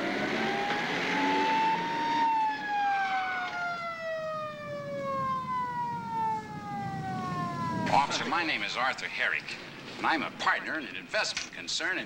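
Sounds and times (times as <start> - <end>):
police siren wailing: 0.0 - 9.3.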